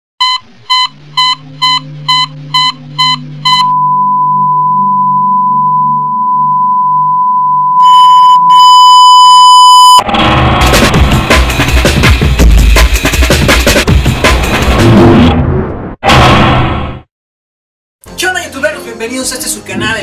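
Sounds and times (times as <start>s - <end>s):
short high beeps: 0.2s - 10.0s
louder higher tone: 0.7s - 10.1s
steady reference tone: 1.6s - 9.2s
drum-heavy electronic music: 10.6s - 14.8s.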